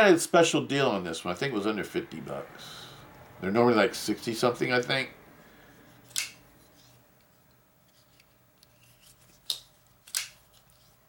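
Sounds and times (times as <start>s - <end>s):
knife blade flipping clicks: 6.1s - 6.4s.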